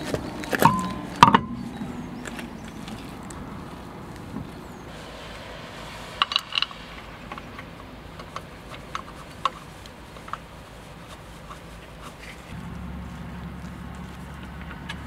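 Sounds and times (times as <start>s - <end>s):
metal bolt clinking on wheel rim: 0.2s - 1.8s.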